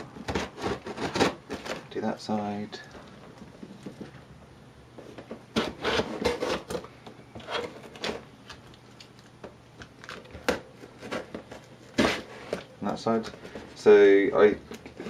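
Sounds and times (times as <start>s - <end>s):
knife slitting packing tape: 0.2s - 1.8s, 5.5s - 8.2s.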